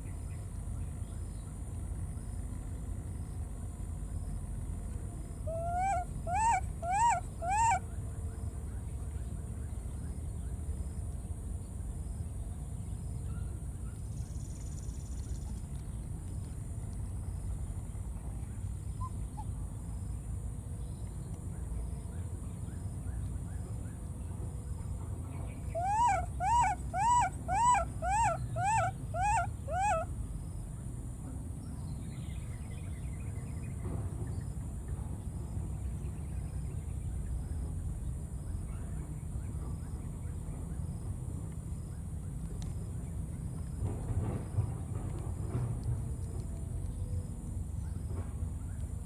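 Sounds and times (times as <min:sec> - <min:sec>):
baby monkey crying: 0:05.5 - 0:07.8, 0:25.8 - 0:30.1.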